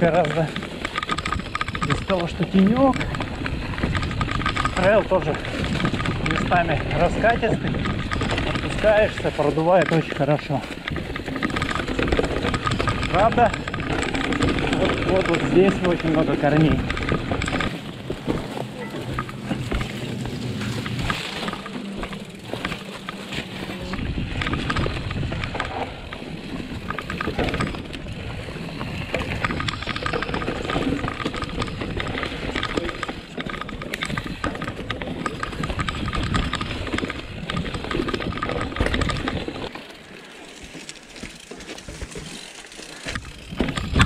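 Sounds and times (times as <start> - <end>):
bike knocking and rattling: 0.0 - 44.0
bike tyres on roots and leaves: 0.0 - 44.0.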